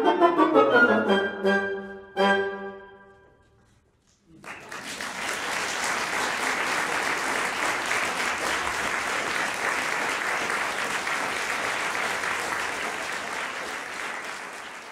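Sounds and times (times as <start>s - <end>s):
audience applauding: 4.3s - 14.9s.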